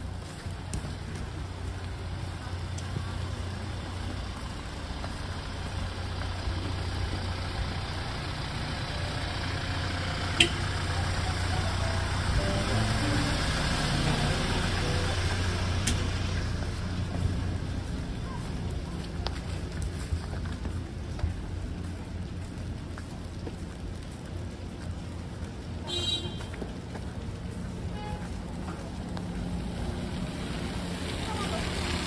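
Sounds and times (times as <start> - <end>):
truck engine humming: 0.0 - 32.0.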